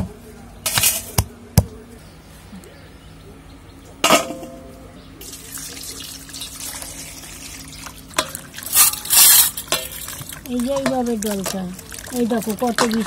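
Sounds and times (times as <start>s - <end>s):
water running into steel basin: 5.2s - 13.0s.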